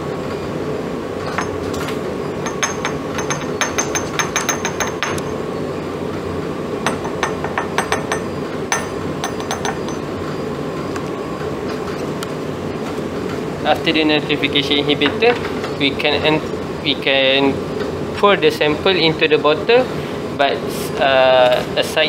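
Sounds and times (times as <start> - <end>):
steady hum: 0.0 - 22.0
taps and clinks on glass bottles: 2.4 - 5.3, 6.9 - 10.1.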